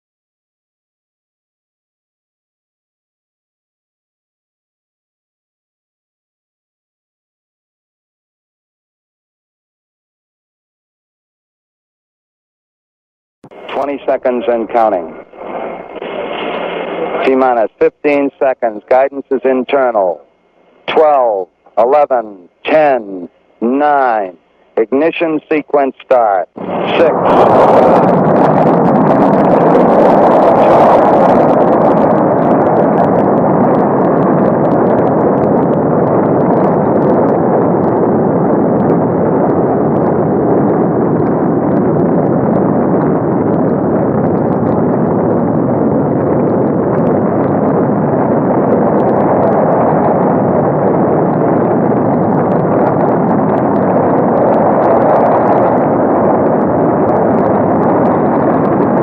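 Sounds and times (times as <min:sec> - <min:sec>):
rocket engines roaring: 0:13.5 - 0:59.0.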